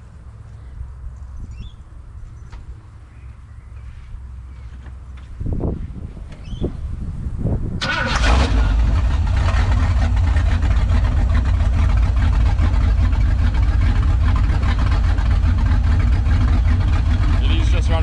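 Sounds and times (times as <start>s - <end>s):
engine starting and idling loudly: 7.8s - 18.0s.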